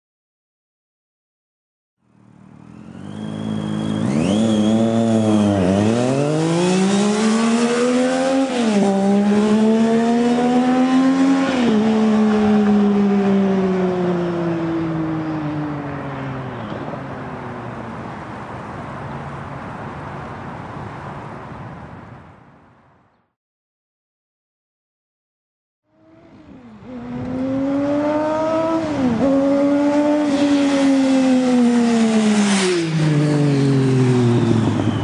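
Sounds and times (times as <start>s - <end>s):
motorcycle engine accelerating: 2.2s - 17.9s, 25.9s - 35.0s.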